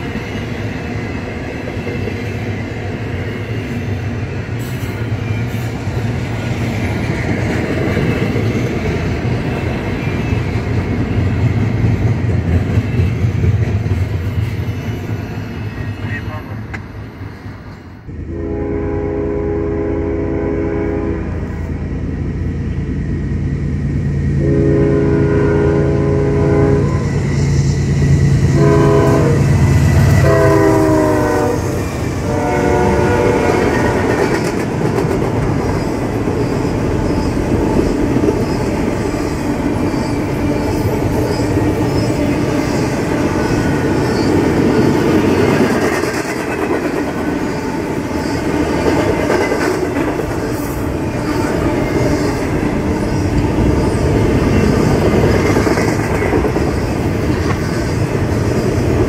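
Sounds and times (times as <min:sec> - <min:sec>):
train horn blasts: 0:18.2 - 0:21.7, 0:24.4 - 0:27.3, 0:28.4 - 0:34.2
freight cars rumbling: 0:21.2 - 0:59.0.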